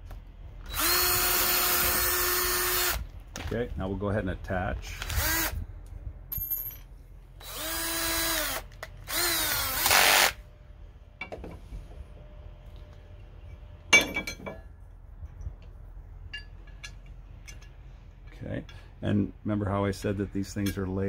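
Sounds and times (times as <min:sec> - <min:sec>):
cordless drill whining: 0:00.6 - 0:03.0, 0:05.0 - 0:05.6, 0:07.4 - 0:10.4.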